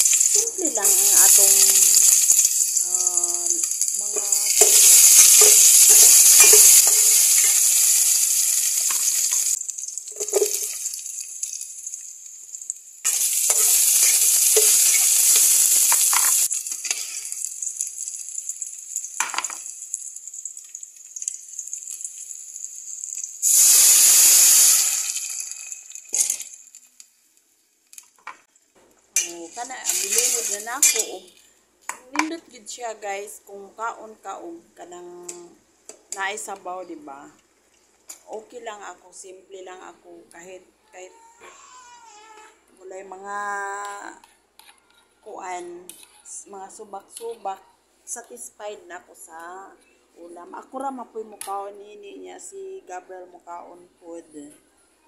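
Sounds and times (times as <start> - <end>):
loud sizzling in hot oil: 0.0 - 28.2, 29.2 - 31.5.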